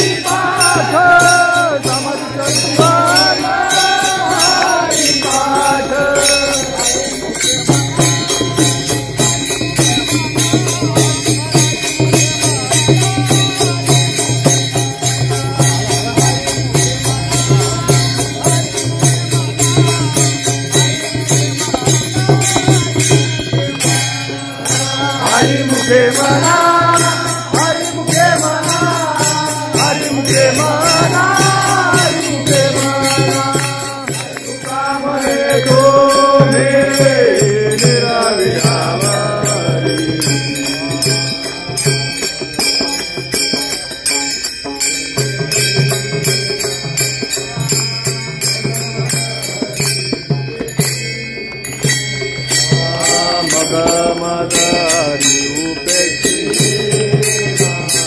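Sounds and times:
group singing devotional song: 0:00.0 - 0:11.6, 0:14.8 - 0:43.8, 0:47.4 - 0:50.4, 0:52.7 - 0:58.0
hand cymbals clashing: 0:00.0 - 0:58.0.

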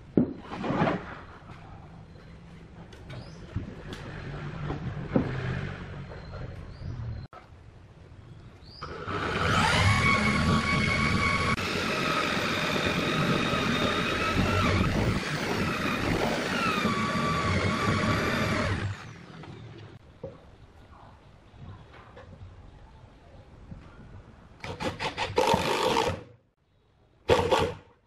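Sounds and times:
cordless drill boring into wood: 0:08.8 - 0:19.2.

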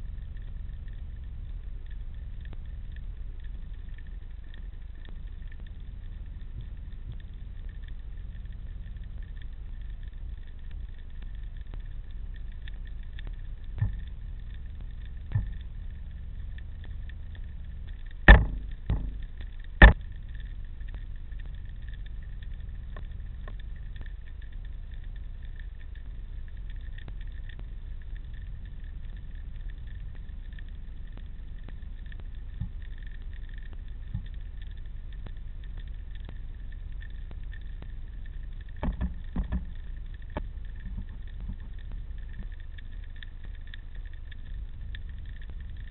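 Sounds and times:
underwater low rumble: 0:00.0 - 0:45.9
sharp knocks underwater: 0:18.2 - 0:20.1, 0:38.8 - 0:41.7.

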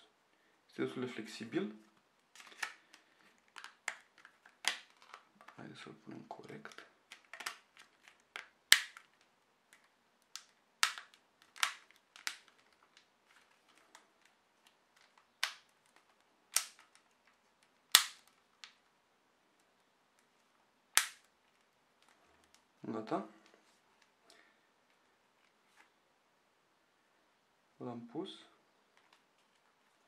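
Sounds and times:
plastic phone cover clicking: 0:02.4 - 0:05.6, 0:06.7 - 0:13.1, 0:15.0 - 0:17.2, 0:17.9 - 0:18.8.

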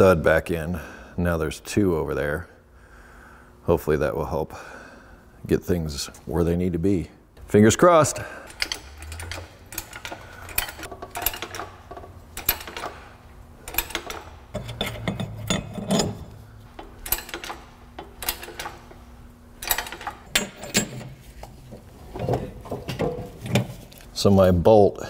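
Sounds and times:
low steady hum: 0:00.0 - 0:25.0
metallic clinks and knocks: 0:08.4 - 0:19.0, 0:19.6 - 0:21.2.

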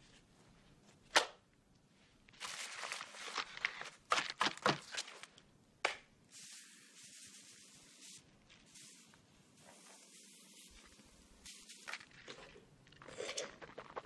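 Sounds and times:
paper straws crinkling and tearing: 0:02.4 - 0:05.3
sugar powder pouring hiss: 0:06.3 - 0:12.0.

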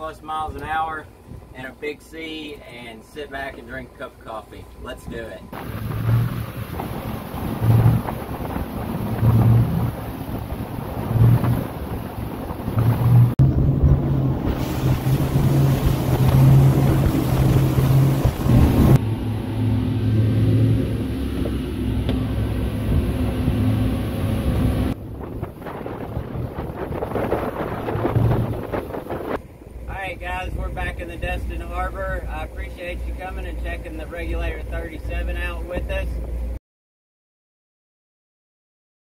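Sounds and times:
outboard engines droning: 0:00.0 - 0:36.6
wind on microphone: 0:05.5 - 0:29.6.

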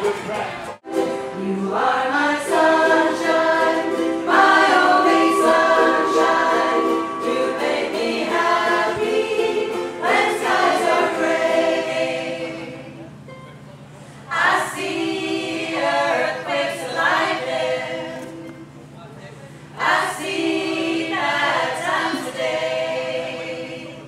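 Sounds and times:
ukulele: 0:00.0 - 0:19.0
group singing: 0:01.4 - 0:13.1, 0:14.3 - 0:18.7, 0:19.7 - 0:24.0.

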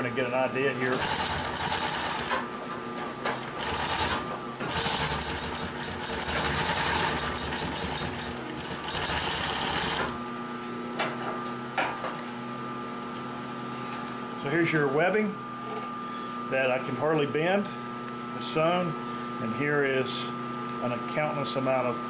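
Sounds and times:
industrial sewing machine stitching: 0:00.9 - 0:02.4, 0:03.6 - 0:10.2.

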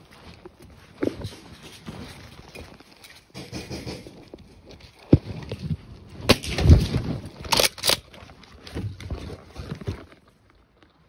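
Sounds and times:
sharp cracks: 0:06.2 - 0:08.3.

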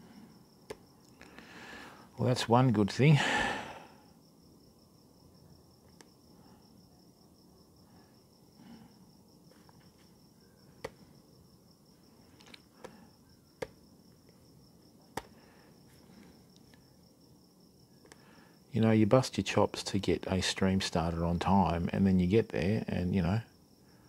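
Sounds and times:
crickets chirping: 0:00.0 - 0:24.0
laptop keyboard clicks: 0:15.2 - 0:15.4.

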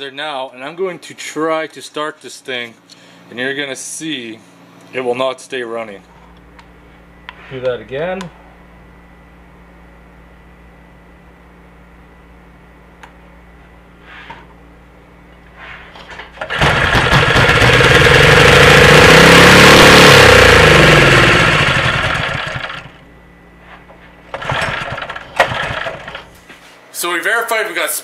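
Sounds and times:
engine pull-start: 0:16.3 - 0:22.9, 0:24.3 - 0:26.3
small engine running: 0:16.4 - 0:23.0, 0:24.3 - 0:26.3.

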